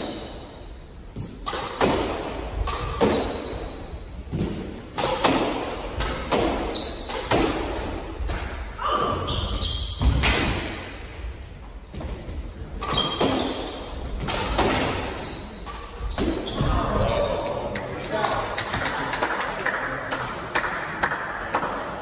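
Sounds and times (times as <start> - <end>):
shoes squeaking on hardwood floor: 0.0 - 7.8, 9.0 - 10.2, 11.5 - 17.4
squash ball hitting racquets and walls: 0.0 - 11.2, 11.8 - 19.4, 20.1 - 22.0.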